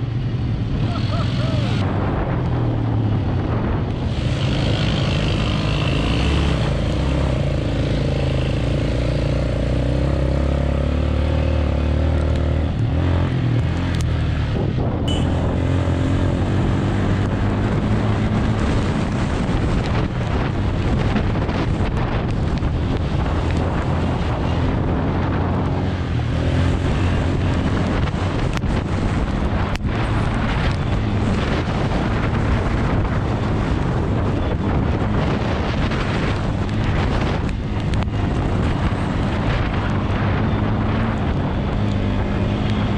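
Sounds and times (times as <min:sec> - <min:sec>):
wind noise on microphone: 0:00.0 - 0:42.9
quad bike engine running: 0:03.6 - 0:25.7.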